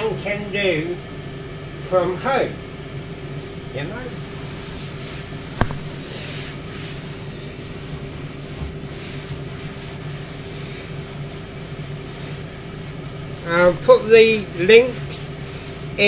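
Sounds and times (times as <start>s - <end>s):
air fryer humming: 0.0s - 16.0s
cloth rubbing and brushing: 4.4s - 13.5s
sharp click: 5.6s - 6.0s.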